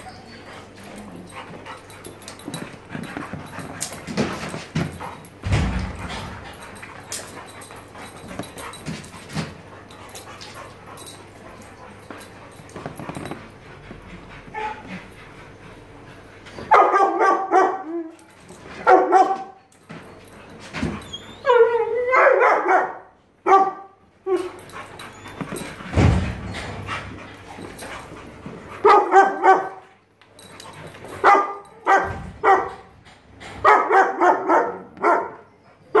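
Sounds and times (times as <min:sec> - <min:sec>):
dog whining: 0:00.0 - 0:01.6, 0:14.4 - 0:14.9, 0:21.0 - 0:22.4, 0:24.2 - 0:25.8
dogs scuffling: 0:00.0 - 0:17.1, 0:24.3 - 0:33.8
dogs barking and yapping: 0:00.0 - 0:36.0.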